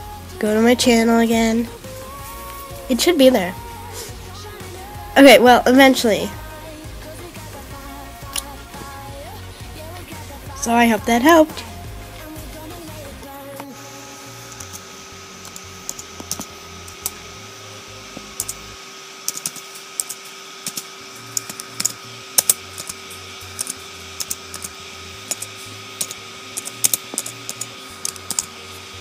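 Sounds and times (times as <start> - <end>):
faint steady hum: 0.0 - 29.0
laptop keyboard typing: 15.4 - 17.2, 18.2 - 18.6, 19.3 - 28.5.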